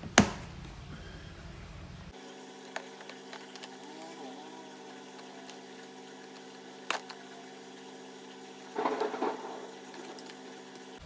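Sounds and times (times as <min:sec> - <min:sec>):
steady hum: 0:00.0 - 0:11.0
plastic lid scraping rattle: 0:08.8 - 0:10.4.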